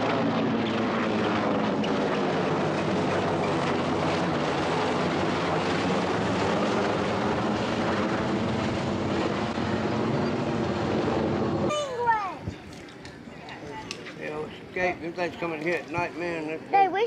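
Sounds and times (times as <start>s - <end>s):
helicopter rotors droning: 0.0s - 17.0s.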